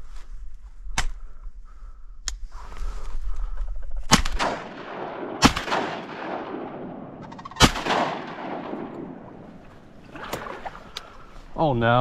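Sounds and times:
shotgun shots with echo: 0:04.1 - 0:09.6.

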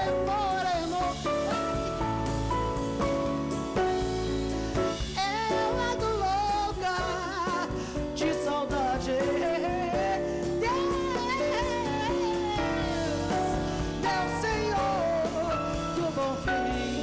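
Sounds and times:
woman singing with vibrato: 0:00.0 - 0:01.8, 0:05.1 - 0:17.0
live band playing: 0:00.0 - 0:17.0.

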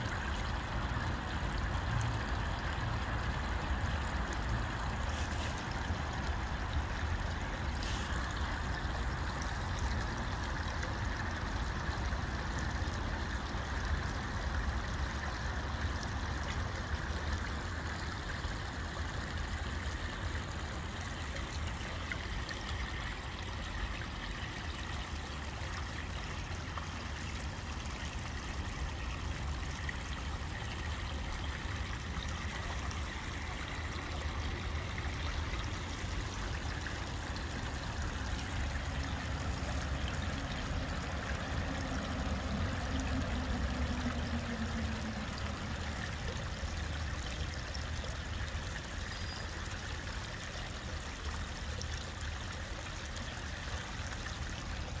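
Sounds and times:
creek trickling over rocks: 0:00.0 - 0:55.0.

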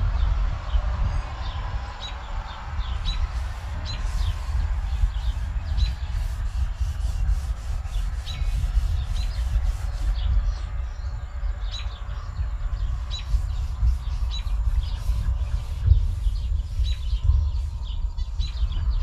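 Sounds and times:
steady low rumble: 0:00.0 - 0:19.0
birds chirping: 0:00.1 - 0:19.0
paper towel rubbing on griddle: 0:03.2 - 0:10.4, 0:13.1 - 0:17.8.

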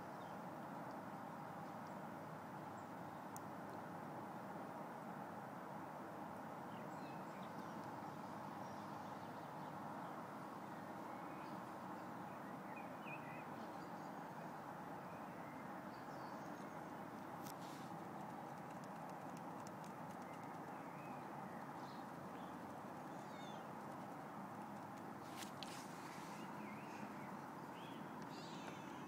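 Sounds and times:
outdoor background noise: 0:00.0 - 0:29.0
faint bird chirps: 0:06.7 - 0:29.0.

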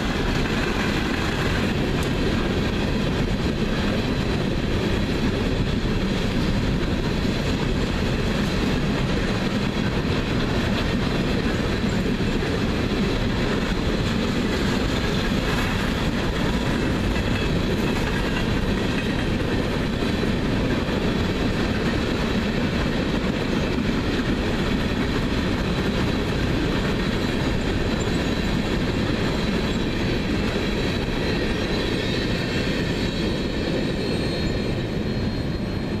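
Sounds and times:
freight train wheels rumbling: 0:00.0 - 0:36.0
wheels squealing: 0:31.2 - 0:36.0.

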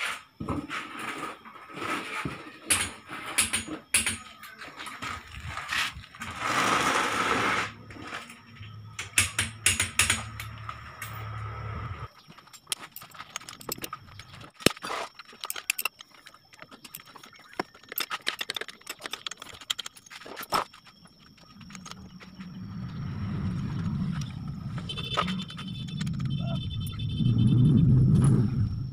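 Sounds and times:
metallic clinks and rattles: 0:12.2 - 0:22.1
low rumble: 0:22.2 - 0:28.9.

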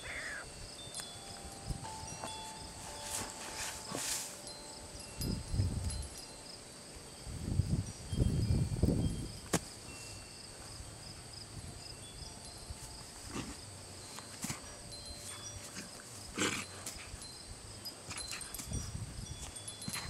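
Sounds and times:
raccoon noises: 0:00.0 - 0:00.6
scuffling on grass: 0:00.7 - 0:07.1.

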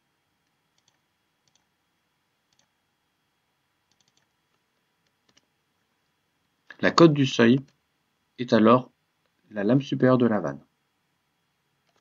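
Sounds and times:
computer mouse clicks: 0:00.4 - 0:01.7, 0:02.5 - 0:02.8, 0:03.9 - 0:05.5.

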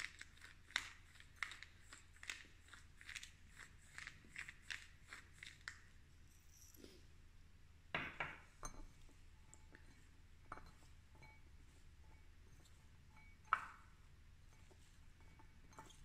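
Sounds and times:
glass bowl clinking: 0:08.0 - 0:16.0.

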